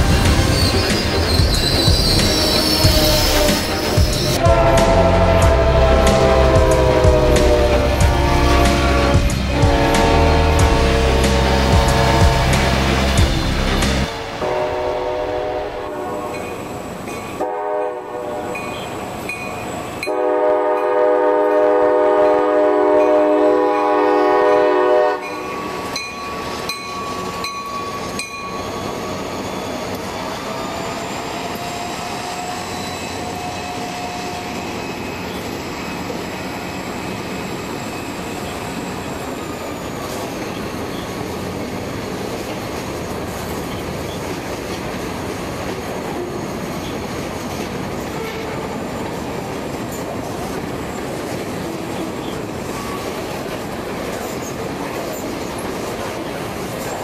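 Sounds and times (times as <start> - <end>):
train wheel clatter: 0.0 - 14.6, 22.9 - 57.0
faint wheel squeal: 0.5 - 4.4, 27.2 - 42.6
train horn blast: 2.0 - 16.7, 17.4 - 18.9, 20.0 - 26.0, 48.0 - 49.0.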